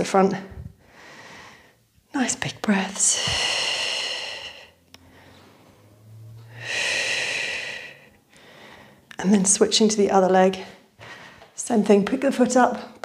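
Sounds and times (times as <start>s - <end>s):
woman breathing deeply: 0.5s - 1.9s, 3.0s - 9.2s, 10.8s - 11.6s.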